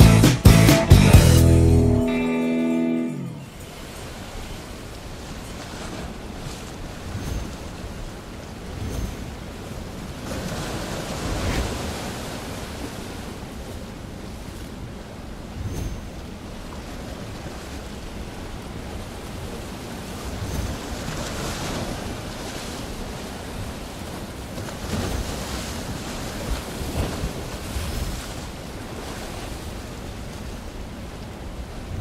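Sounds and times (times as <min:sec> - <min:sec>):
wind buffeting microphone: 0:31.0 - 0:32.0.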